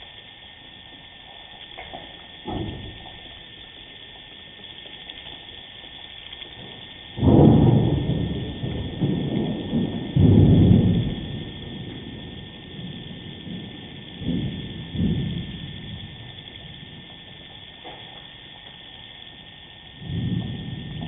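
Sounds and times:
faint steady hiss: 0:00.0 - 0:21.0
deep low rumble: 0:07.2 - 0:17.9, 0:20.0 - 0:21.0.

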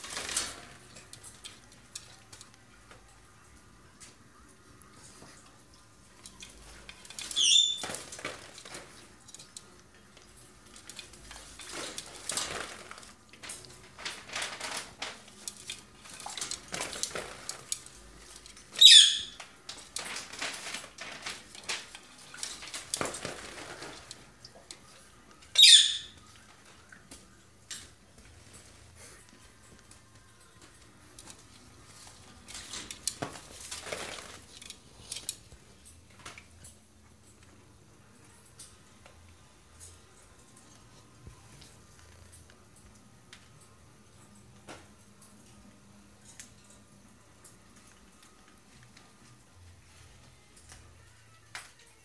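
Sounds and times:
parrot squealing: 0:07.4 - 0:07.8, 0:18.8 - 0:19.4, 0:25.6 - 0:26.2.

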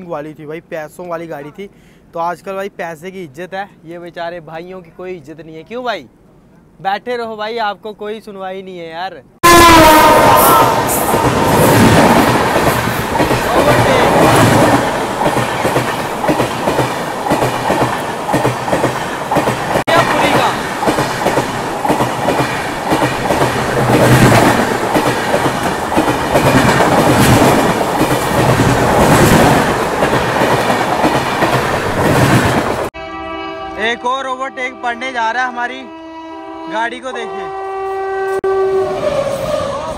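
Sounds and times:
train passing rumble: 0:09.5 - 0:32.9
wheels clickety-clack on rail joints: 0:11.0 - 0:32.9.

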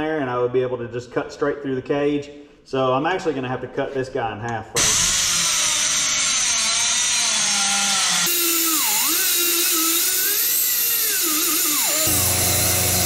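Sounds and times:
angle grinder cutting metal: 0:04.8 - 0:13.0.

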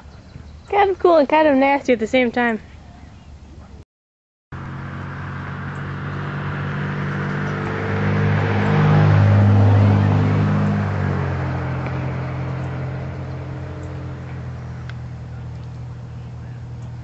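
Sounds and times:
engine passing by: 0:04.6 - 0:17.0.

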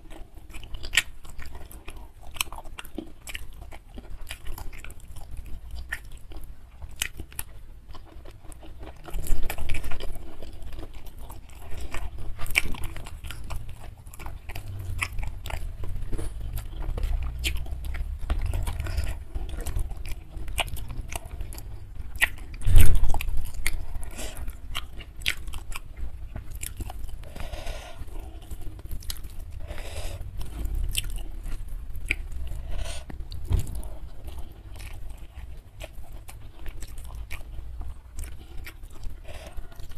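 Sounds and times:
close chewing with crunching: 0:00.0 - 0:39.9
wet mouth sounds: 0:11.1 - 0:39.9.

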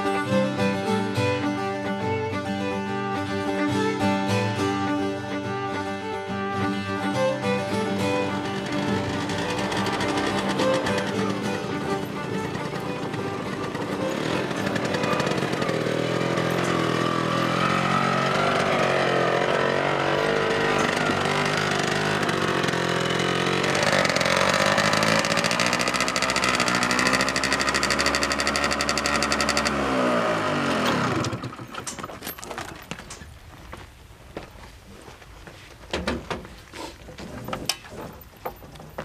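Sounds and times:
engine winding down: 0:04.9 - 0:32.3
truck engine revving: 0:07.0 - 0:31.7.

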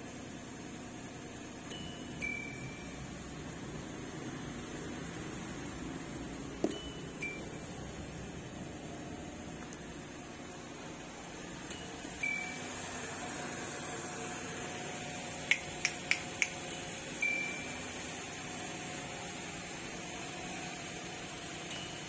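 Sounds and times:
electronic chime: 0:01.7 - 0:03.2, 0:06.7 - 0:07.7, 0:11.7 - 0:12.8, 0:16.7 - 0:18.2, 0:21.7 - 0:22.0
sharp clicks: 0:15.5 - 0:16.8.

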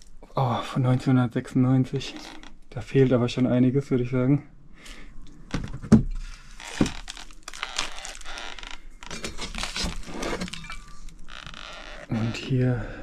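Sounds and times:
scraping and rustling: 0:05.6 - 0:12.2.

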